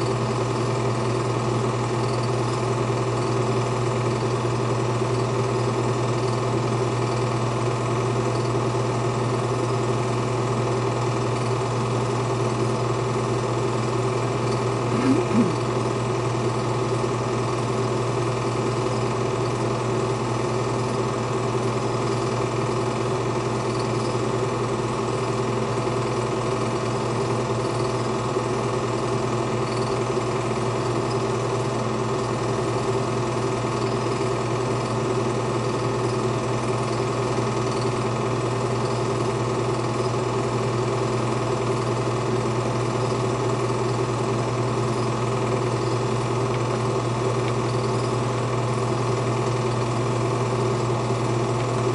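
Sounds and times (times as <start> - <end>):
film projector whirring: 0.0 - 51.9
steady hum: 14.7 - 15.9.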